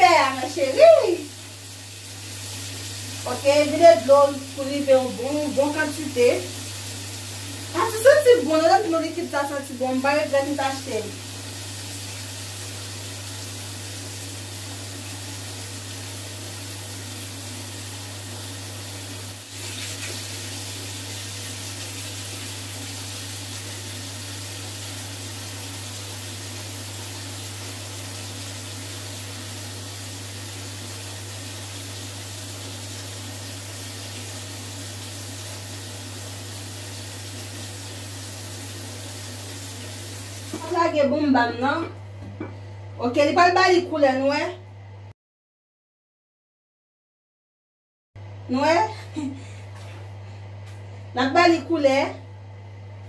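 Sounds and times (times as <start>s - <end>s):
tap running into bathtub: 39.5s - 40.8s.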